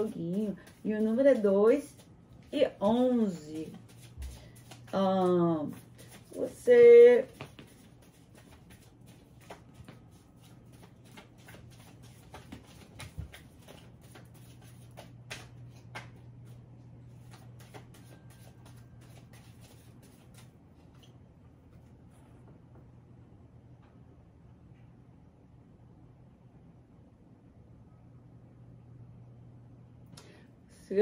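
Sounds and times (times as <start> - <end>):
cards being shuffled by hand: 0.0 - 20.6
faint low hum: 0.0 - 31.0.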